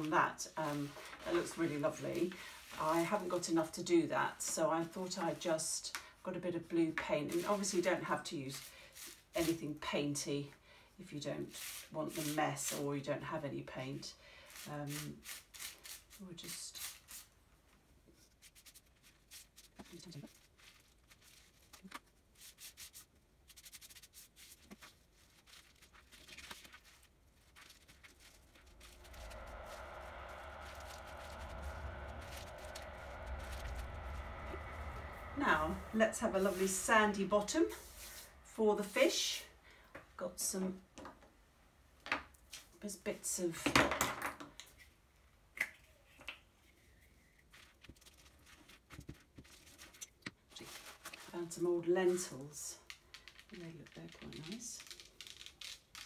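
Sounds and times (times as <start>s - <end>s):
bubble wrap crinkling and crackling: 18.3s - 35.6s, 52.8s - 56.0s.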